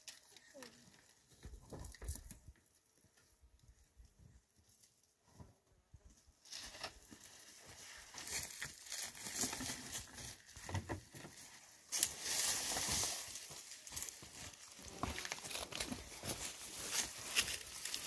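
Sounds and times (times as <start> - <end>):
rustling dry grass: 6.4 - 18.0.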